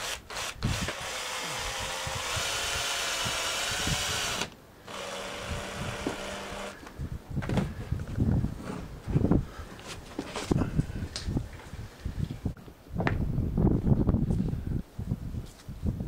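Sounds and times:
cordless drill driving screw: 0.0 - 6.8.

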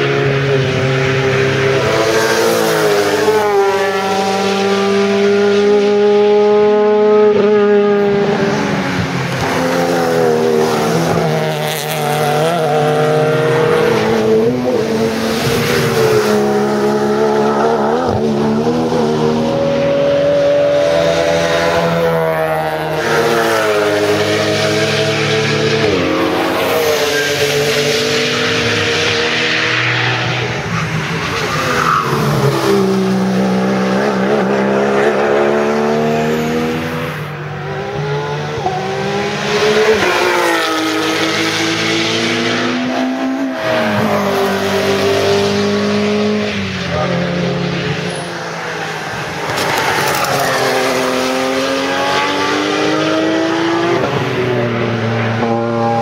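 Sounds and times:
race car engines accelerating: 0.0 - 56.0.

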